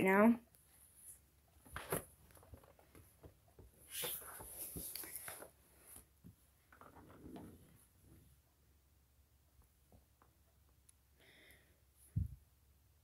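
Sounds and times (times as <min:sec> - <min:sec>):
rustling handling noise: 0:00.6 - 0:08.2.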